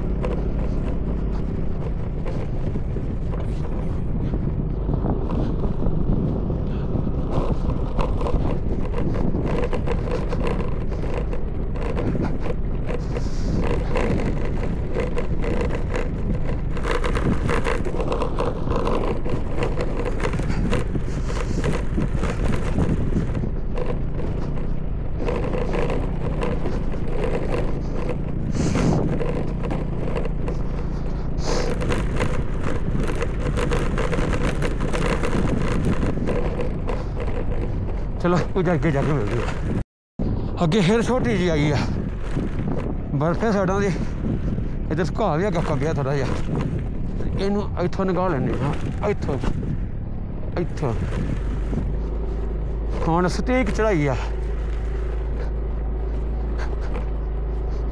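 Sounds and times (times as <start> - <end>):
scooter engine running: 0.0 - 57.9.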